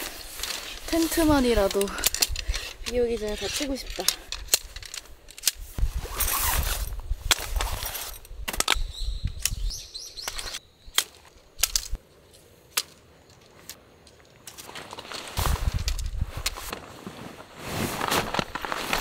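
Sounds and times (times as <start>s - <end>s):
tent fabric rustling: 0.0s - 1.9s, 5.6s - 8.2s, 14.6s - 19.0s
tent poles clicking: 0.0s - 19.0s.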